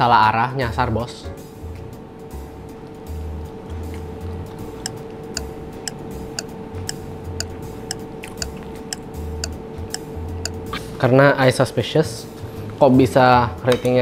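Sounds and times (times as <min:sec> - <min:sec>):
clock-like ticking: 0:05.4 - 0:09.0
chewing thumps: 0:07.4 - 0:09.1.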